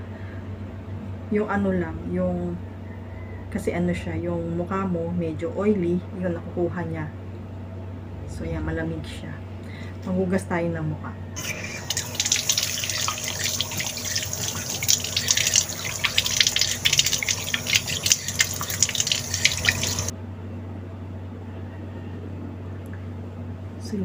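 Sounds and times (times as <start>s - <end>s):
tap water running into sink: 11.4s - 20.1s
water splashing on face: 11.4s - 20.1s.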